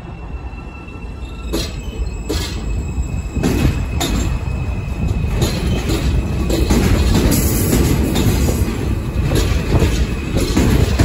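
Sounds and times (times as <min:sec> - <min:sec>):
passing subway train: 0:00.0 - 0:11.0
train wheels rumbling on rail: 0:00.0 - 0:11.0
wheels clacking over rail joints: 0:03.4 - 0:11.0.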